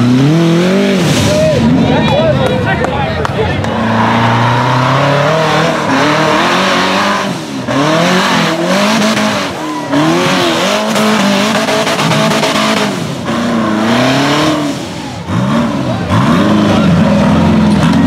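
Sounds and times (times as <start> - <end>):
engine screaming at high revs: 0.0 - 2.1, 3.6 - 18.0.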